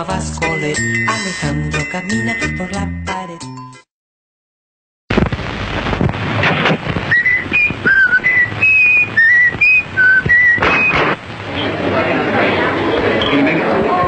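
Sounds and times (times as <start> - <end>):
knocks and noise bursts: 5.1 - 11.3
person whistling a tune: 7.1 - 11.0.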